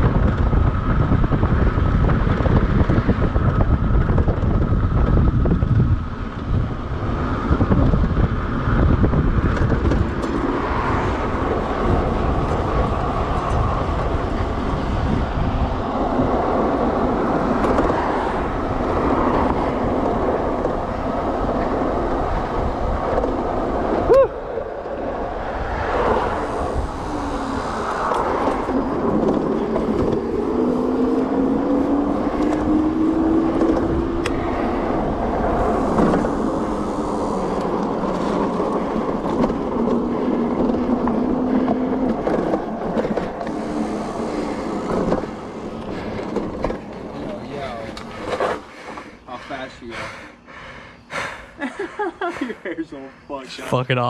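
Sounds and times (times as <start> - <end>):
wind buffeting microphone: 0.0 - 53.6.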